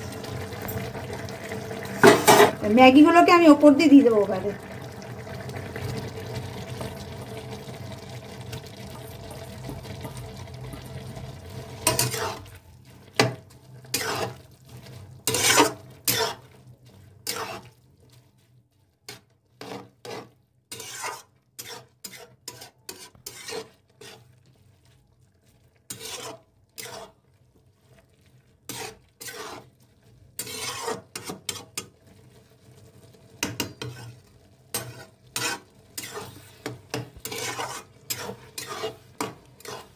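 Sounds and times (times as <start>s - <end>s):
simmering hiss from pan: 0.0s - 18.3s, 25.9s - 27.9s, 28.5s - 39.9s
spatula scraping metal pan: 2.0s - 3.3s, 9.6s - 27.3s, 27.9s - 32.0s, 33.4s - 39.9s.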